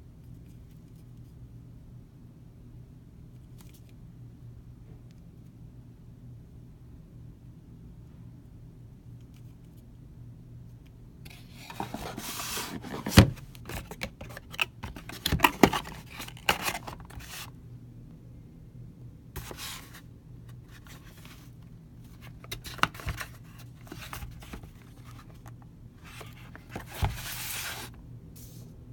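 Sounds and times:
cardboard scraping and rubbing: 11.3 - 17.5, 19.4 - 28.6.

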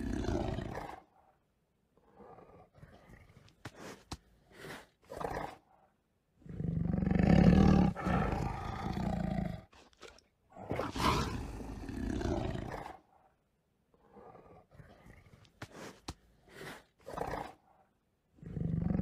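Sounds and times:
tiger roaring: 0.0 - 1.2, 6.4 - 9.7, 10.5 - 13.3, 18.4 - 19.0.

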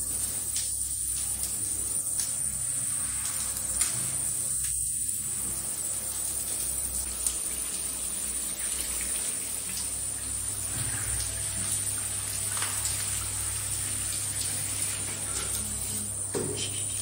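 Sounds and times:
water running and splashing: 0.0 - 17.0.

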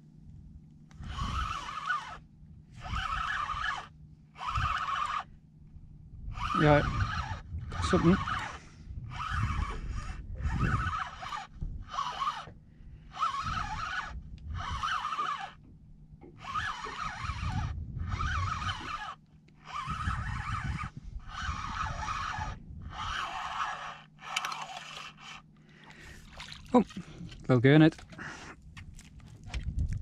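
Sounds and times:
fishing reel winding: 0.9 - 2.2, 2.8 - 5.3, 6.3 - 12.5, 13.1 - 15.6, 16.4 - 26.2.

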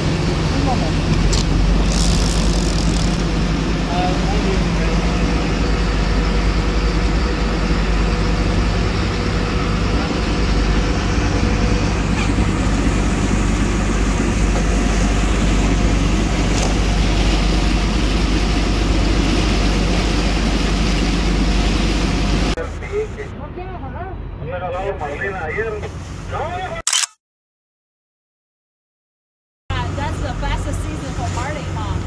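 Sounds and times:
water rushing from wake: 0.0 - 23.2, 29.8 - 32.0
boat engine drone: 0.0 - 26.8, 29.7 - 32.0.

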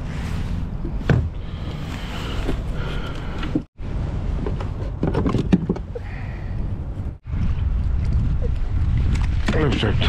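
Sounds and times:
wind rumble on microphone: 3.5 - 10.0.

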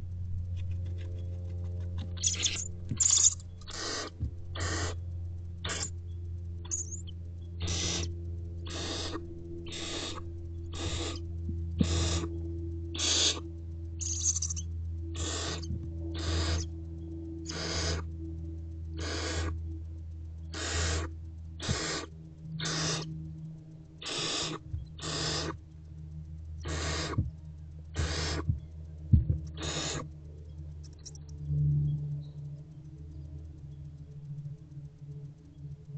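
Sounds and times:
low electrical hum: 0.0 - 35.9
owlets rasping hiss calls: 2.2 - 5.0, 5.6 - 6.0, 6.7 - 12.3, 12.9 - 13.4, 14.0 - 16.7, 17.4 - 18.1, 19.0 - 19.6, 20.5 - 23.1, 24.0 - 25.6, 26.6 - 27.2, 28.0 - 28.5, 29.6 - 30.1.

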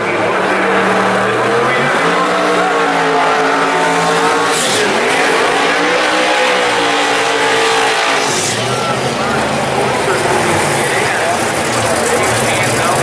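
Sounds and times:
car engine at high revs: 0.0 - 13.0
tire squeal: 0.4 - 9.5.

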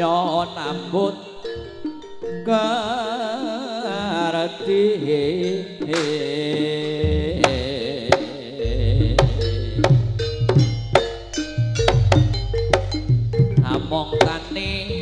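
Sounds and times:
sharp drum strikes: 7.0 - 15.0
heavy bass: 8.6 - 15.0.

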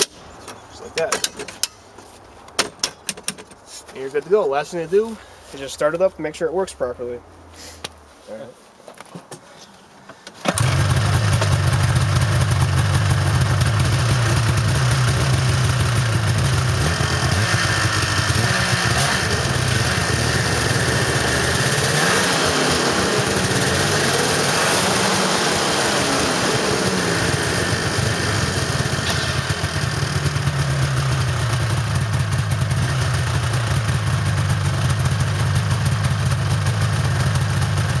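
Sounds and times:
snowmobile engine revving and idling: 10.5 - 38.0.

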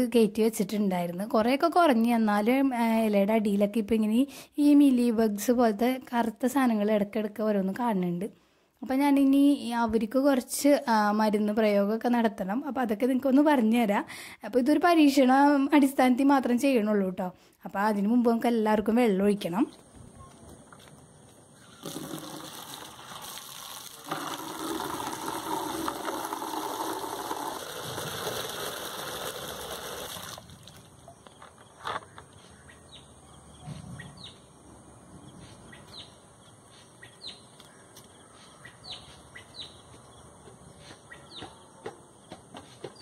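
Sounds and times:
bird chirping: 19.7 - 21.9, 31.0 - 43.0
tap water running into bucket: 21.8 - 30.9.

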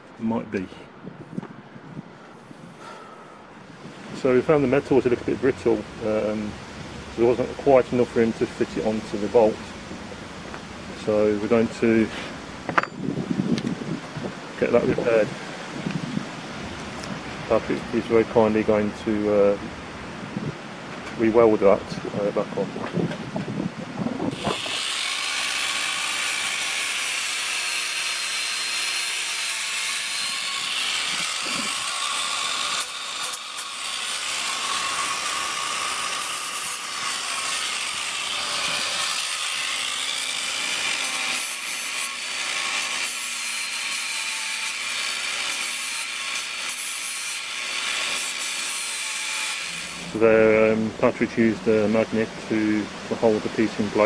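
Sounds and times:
angle grinder grinding steel: 24.3 - 50.8.

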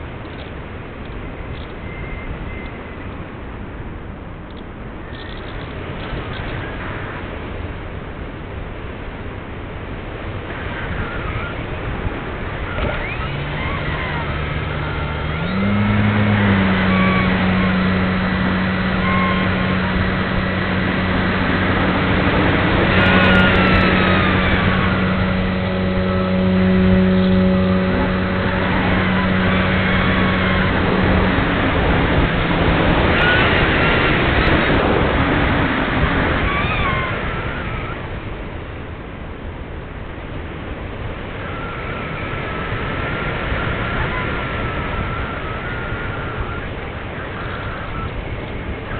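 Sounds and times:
electric motor drone: 10.6 - 38.3, 41.0 - 48.9.

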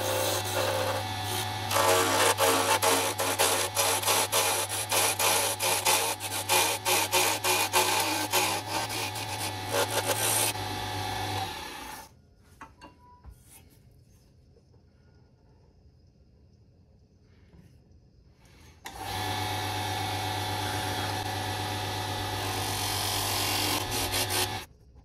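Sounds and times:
lathe motor hum: 0.0 - 12.1, 18.9 - 24.7
lathe tool scraping wood: 0.0 - 12.1, 18.9 - 24.7.

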